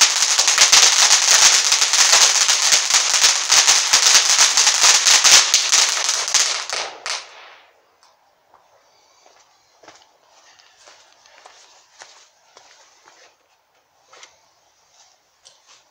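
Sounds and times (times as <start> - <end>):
firework fountain crackling: 0.0 - 7.9.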